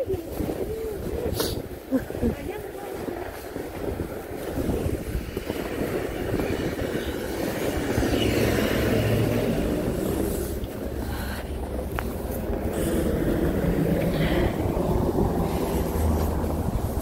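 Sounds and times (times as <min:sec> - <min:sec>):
vehicle engine rumble: 0:00.0 - 0:17.0
footsteps crunching through snow: 0:00.1 - 0:11.0, 0:14.5 - 0:17.0.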